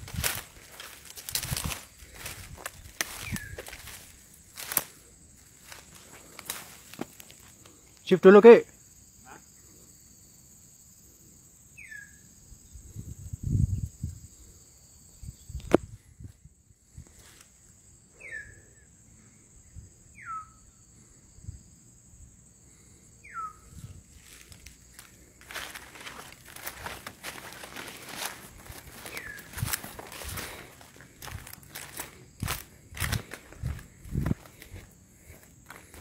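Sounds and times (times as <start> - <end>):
insects droning: 0.0 - 36.0.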